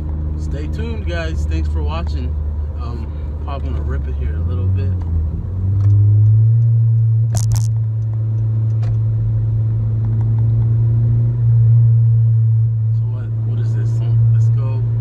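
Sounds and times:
car engine droning in cabin: 0:00.0 - 0:15.0
sharp clicks: 0:07.3 - 0:09.0.

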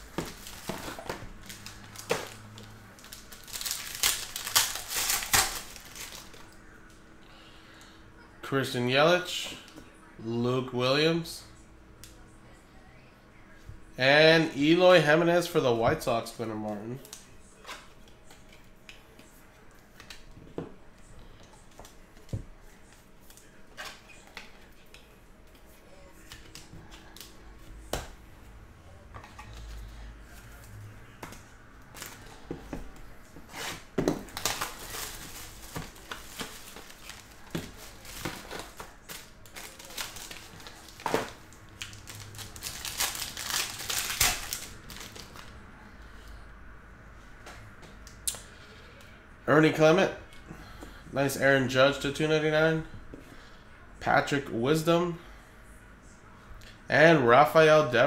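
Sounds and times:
wrapper crinkling and tearing: 0:00.2 - 0:06.5, 0:33.6 - 0:45.5.

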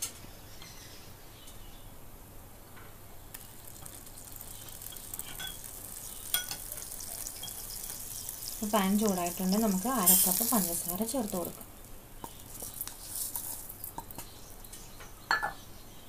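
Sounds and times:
pan crackles: 0:03.2 - 0:14.9
empty pan hissing and sizzling: 0:03.3 - 0:14.6.

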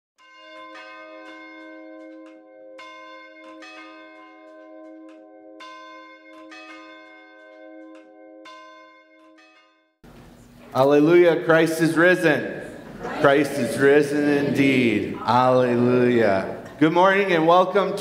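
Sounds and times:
church bells ringing: 0:00.2 - 0:10.0, 0:10.8 - 0:18.0.

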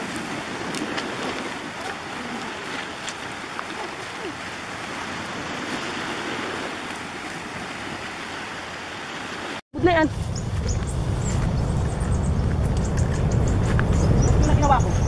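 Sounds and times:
sea waves washing against rocks: 0:00.0 - 0:09.6.

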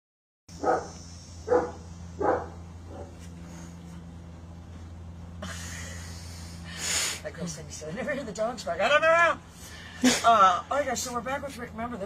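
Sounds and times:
steady low hum: 0:00.5 - 0:12.0
dog barking: 0:00.6 - 0:03.2.

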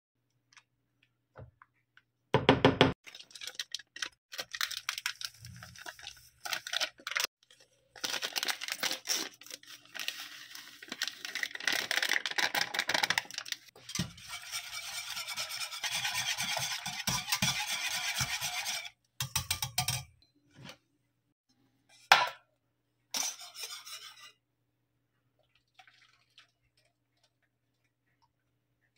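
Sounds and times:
plastic sachet crinkling: 0:03.0 - 0:13.7
wire whisk scraping pot: 0:13.8 - 0:20.1, 0:23.2 - 0:24.4.

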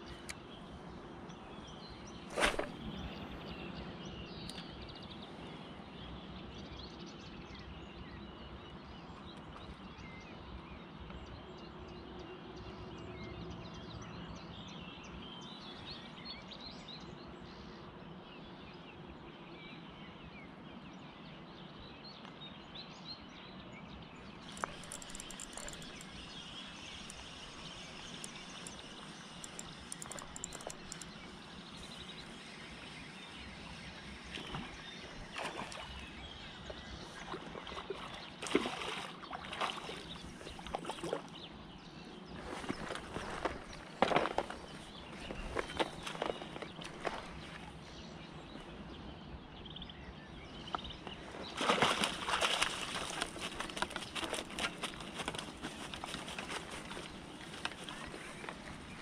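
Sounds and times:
birds chirping: 0:00.0 - 0:17.7, 0:24.2 - 0:59.0
outdoor background noise: 0:00.0 - 0:59.0
sharp clicks: 0:24.5 - 0:26.3, 0:26.9 - 0:31.2
lure splashing into water: 0:24.5 - 0:31.1, 0:34.3 - 0:36.0, 0:37.2 - 0:41.3, 0:51.5 - 0:53.8.

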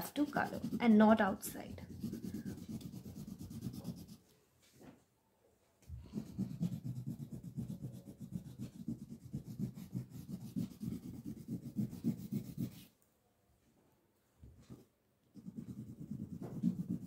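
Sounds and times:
crayon rubbing on paper: 0:00.0 - 0:04.2, 0:06.1 - 0:12.9, 0:15.4 - 0:17.0.

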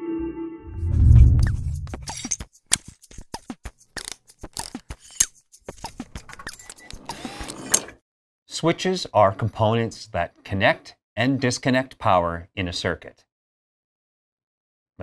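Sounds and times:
deep low boom: 0:00.7 - 0:02.0.

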